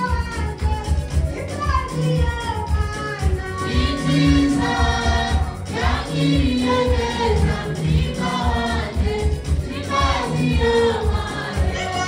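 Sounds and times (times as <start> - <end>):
choir singing over a beat: 3.6 - 12.0.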